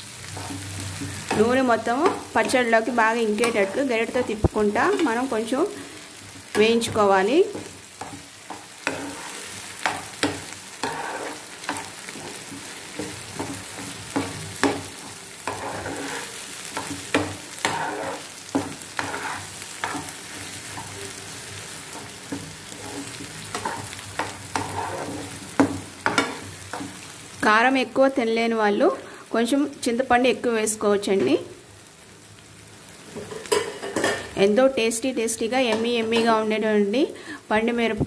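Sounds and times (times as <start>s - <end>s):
chutney sizzling in oil: 0.0s - 38.0s
spatula scraping a pan: 0.2s - 27.1s.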